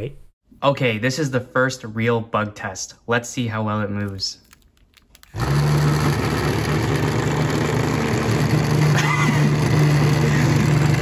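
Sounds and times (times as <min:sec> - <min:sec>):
vibration motor buzzing: 0:05.3 - 0:11.0.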